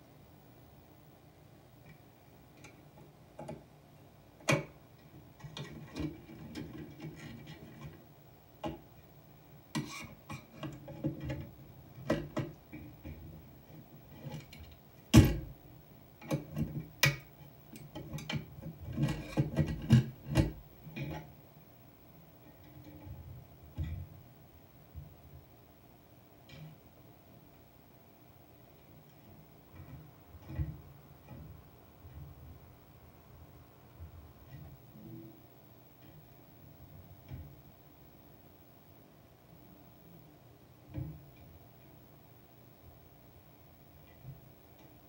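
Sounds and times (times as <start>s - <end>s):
irregular clicks and knocks: 1.8s - 3.7s, 4.4s - 8.0s, 9.7s - 15.6s, 16.2s - 21.4s.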